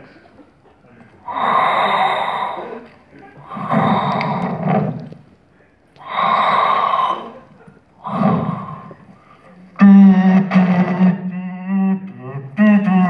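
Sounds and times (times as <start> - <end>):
hissing respirator breathing: 1.2 - 5.3, 6.0 - 9.7.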